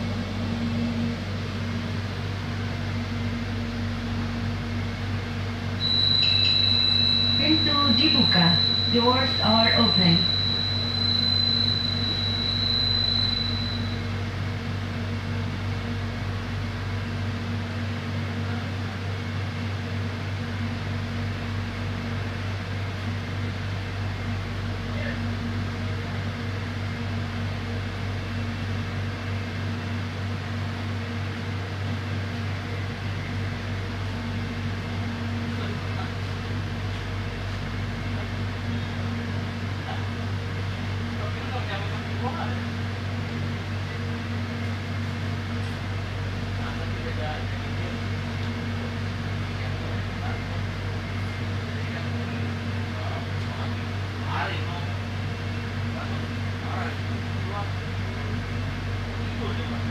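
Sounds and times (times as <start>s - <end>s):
train air conditioning hum: 0.0s - 59.9s
high steady tone: 5.8s - 14.2s.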